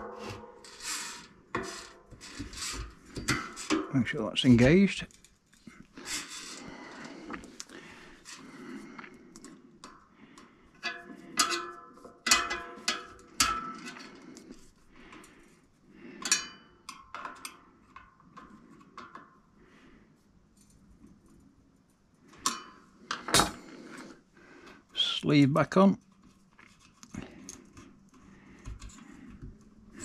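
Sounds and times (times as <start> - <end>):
metal tools clinking on bicycle parts: 0.6 - 5.3, 10.8 - 14.1, 16.2 - 17.6.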